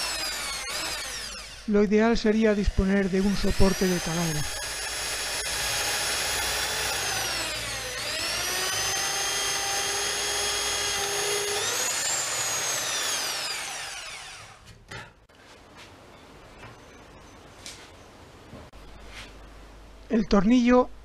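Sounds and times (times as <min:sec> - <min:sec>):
electric drill motor whine: 0:00.0 - 0:01.7, 0:02.5 - 0:14.6.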